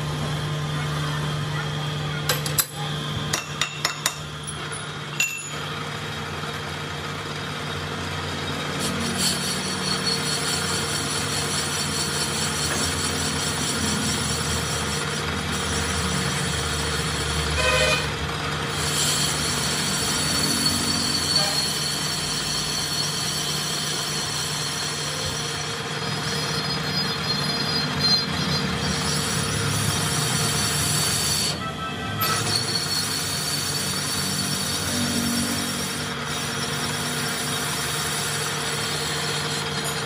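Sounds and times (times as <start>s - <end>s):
lathe running hum: 0.0s - 40.0s
cutting tool scraping hiss: 8.5s - 18.1s, 18.7s - 31.6s, 32.2s - 40.0s.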